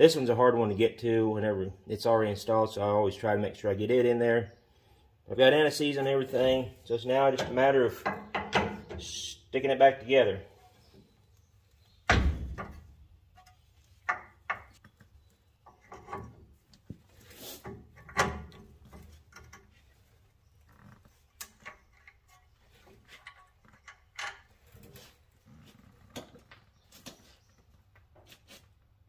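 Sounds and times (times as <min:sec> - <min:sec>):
heavy metal thunk: 0:12.1 - 0:12.9.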